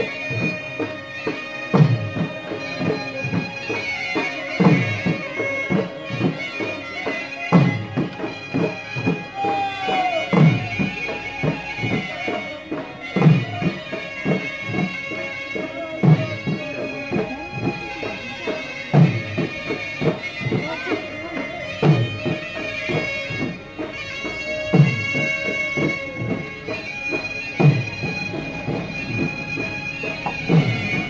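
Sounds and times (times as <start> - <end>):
drum beats: 0.0 - 31.0
reed wind instrument: 0.0 - 31.0.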